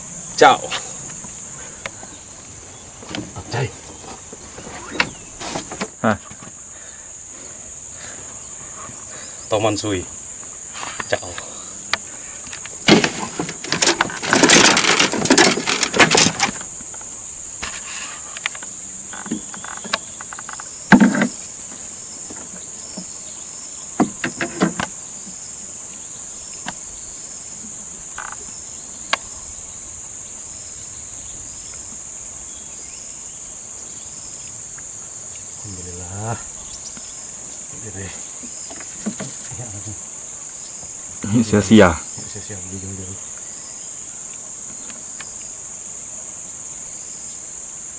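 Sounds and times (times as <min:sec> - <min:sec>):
insects droning: 0:00.0 - 0:47.9
fish rustling and knocking in net: 0:12.8 - 0:16.7.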